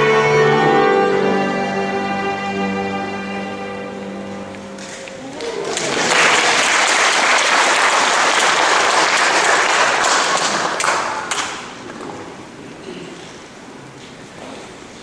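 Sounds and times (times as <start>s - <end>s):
choir and strings chord: 0.0s - 4.8s
audience applause: 4.8s - 11.8s.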